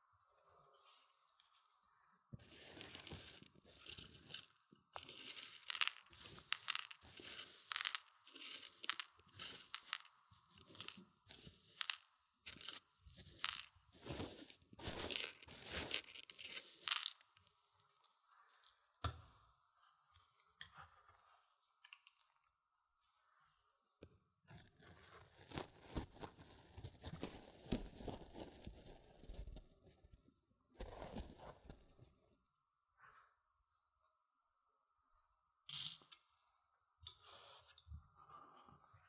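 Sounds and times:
dry beans crunching and rattling: 2.5s - 17.5s.

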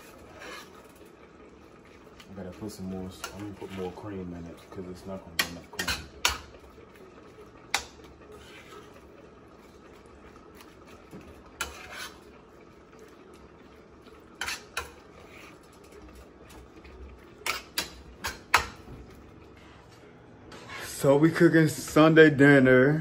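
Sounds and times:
metal tongs scraping a skillet: 0.0s - 1.0s, 3.2s - 4.0s, 5.3s - 6.6s, 7.7s - 9.0s, 11.5s - 12.4s, 14.4s - 16.6s, 17.4s - 18.8s, 20.5s - 21.2s.

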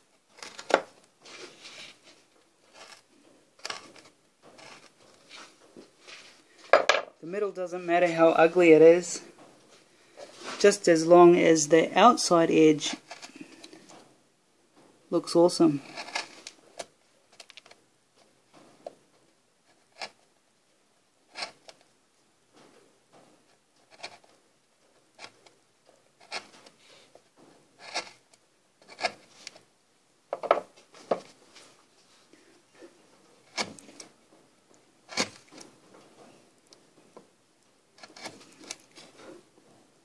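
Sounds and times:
chisel scraping wood: 0.3s - 6.4s, 12.8s - 13.8s, 15.8s - 17.6s, 19.7s - 20.2s, 21.3s - 21.8s, 23.8s - 24.4s, 25.1s - 27.2s, 27.8s - 29.6s, 33.4s - 34.1s, 35.0s - 35.8s, 38.0s - 39.4s.

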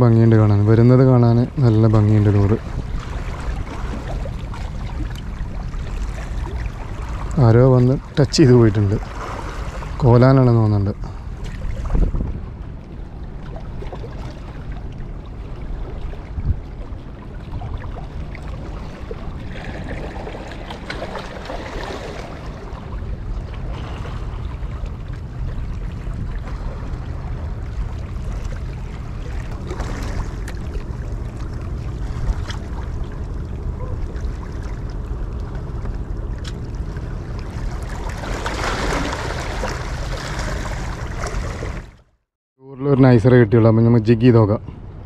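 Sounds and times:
steady low rumble: 0.0s - 45.0s
waves lapping against rocks: 0.8s - 10.4s, 18.0s - 42.1s.

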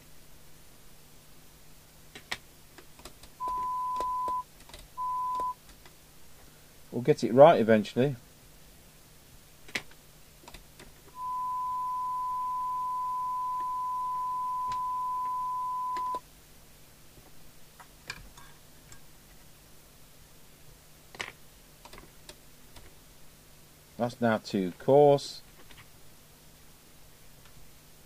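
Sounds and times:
steady test tone through radio speaker: 3.4s - 5.6s, 11.1s - 16.2s.

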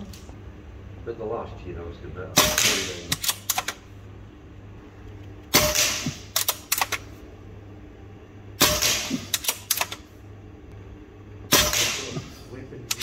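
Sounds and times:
air rifle shots: 2.4s - 3.8s, 5.5s - 7.1s, 8.6s - 10.0s, 11.5s - 12.2s.

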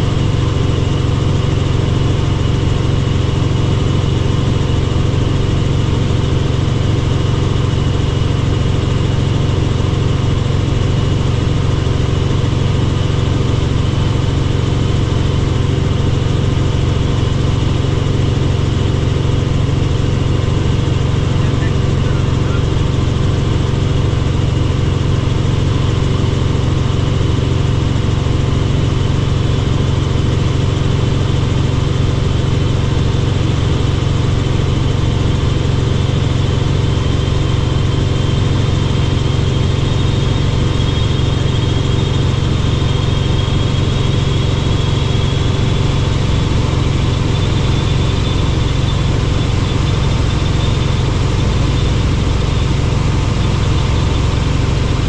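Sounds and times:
helicopter rotor and engine drone: 0.0s - 55.0s
faint high whine: 2.9s - 24.8s, 35.7s - 55.0s.

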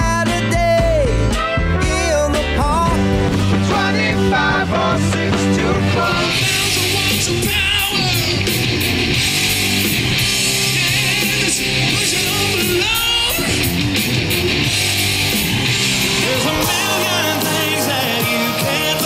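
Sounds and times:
rock band playing: 0.0s - 19.0s
electric guitar bending notes: 5.7s - 19.0s.

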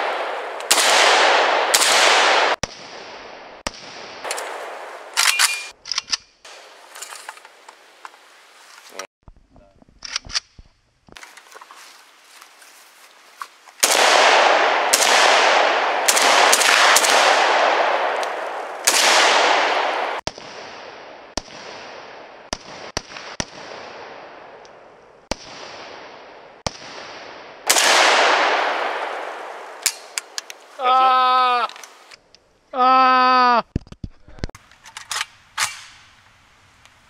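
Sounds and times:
rifle shots with echo: 0.0s - 5.7s, 13.8s - 24.6s, 25.3s - 30.4s.

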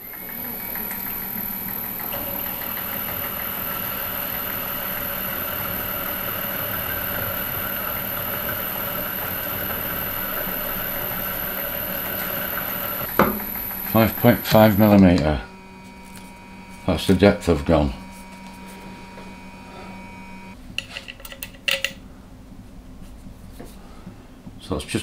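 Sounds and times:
milling machine cutting metal: 0.0s - 15.6s.

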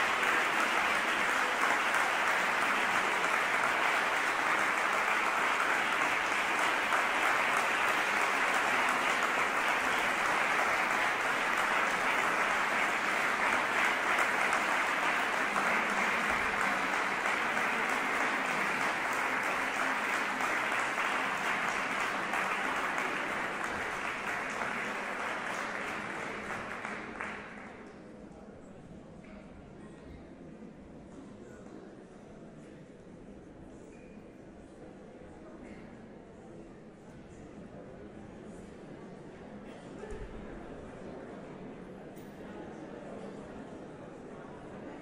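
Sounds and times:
audience applauding: 0.0s - 27.8s.

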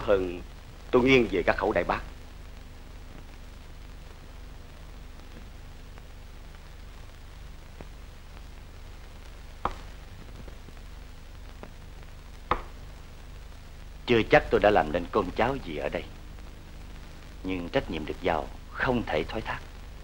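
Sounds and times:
film soundtrack hum and hiss: 0.0s - 20.0s.

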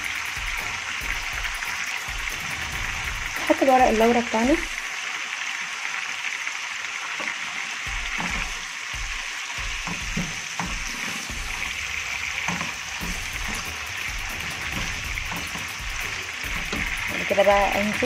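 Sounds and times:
meat sizzling in a pan: 0.0s - 18.0s.

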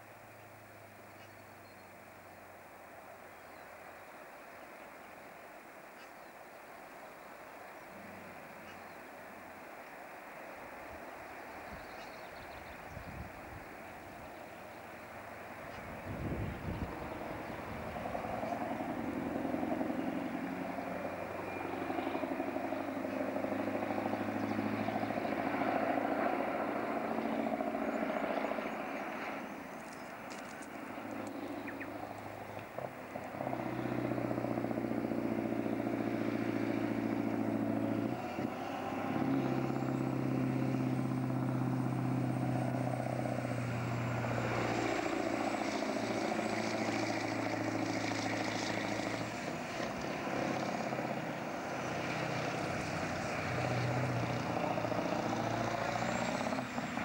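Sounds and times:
truck diesel engine under load: 12.6s - 57.0s.

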